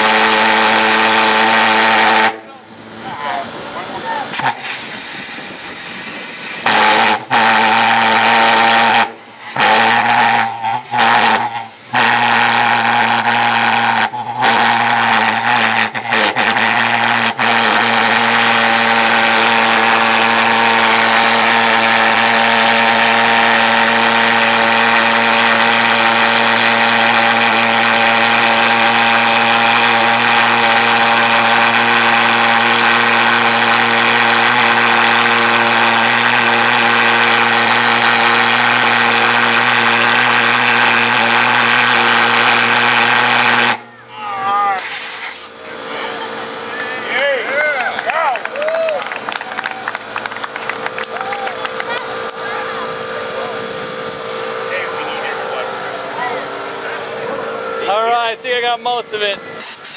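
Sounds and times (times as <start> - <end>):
jet engine droning: 44.5 - 59.9.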